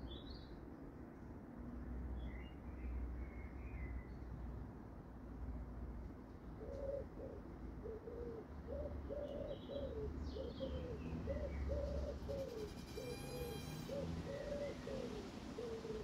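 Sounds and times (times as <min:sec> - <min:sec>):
pigeon cooing: 0:06.6 - 0:16.0
small birds chirping: 0:08.7 - 0:16.0
brief buzzing: 0:12.6 - 0:13.9.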